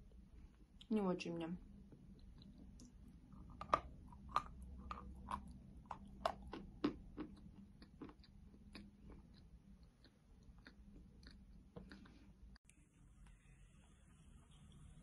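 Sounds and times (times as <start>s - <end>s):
chalk crunching while chewed: 2.1s - 12.3s.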